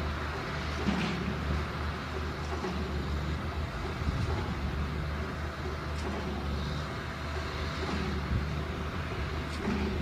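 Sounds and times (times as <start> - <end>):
diesel engine droning: 0.0 - 10.0.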